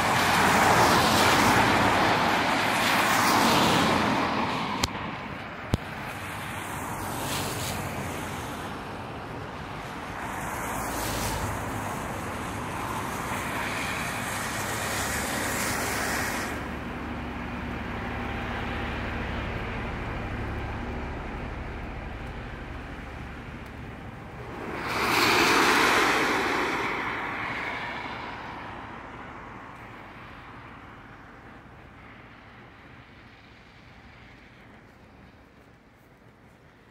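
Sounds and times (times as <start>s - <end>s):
tyres hissing on wet road: 0.0s - 36.9s
vehicle passing close: 6.0s - 34.6s
wind buffeting microphone: 21.4s - 29.7s.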